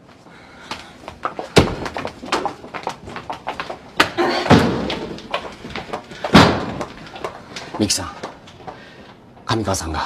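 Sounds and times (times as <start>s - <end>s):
footsteps on hard floor: 0.7s - 8.8s
door banging: 4.4s - 5.4s, 6.2s - 7.1s.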